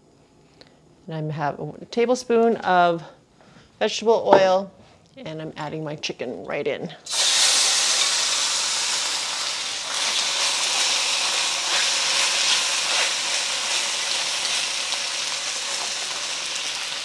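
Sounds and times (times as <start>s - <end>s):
chicken sizzling in oil: 7.1s - 17.0s.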